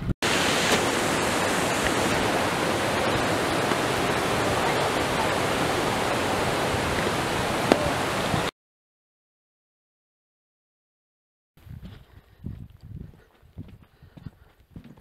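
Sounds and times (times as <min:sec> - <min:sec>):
river rushing over rocks: 0:00.2 - 0:08.5.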